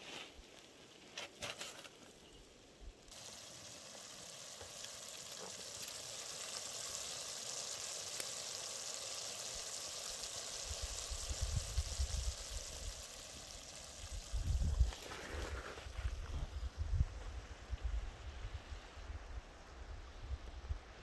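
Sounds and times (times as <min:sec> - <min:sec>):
meat and onions sizzling: 0:03.1 - 0:16.8.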